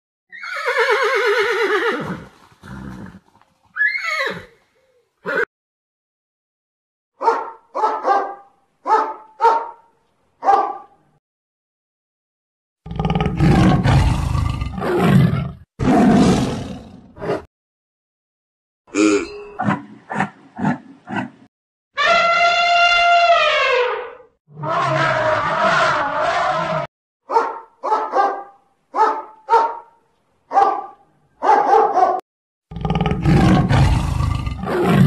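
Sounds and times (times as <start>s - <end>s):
horse whinnying: 0.3s - 5.5s
dog barking: 7.2s - 11.0s, 27.3s - 32.2s.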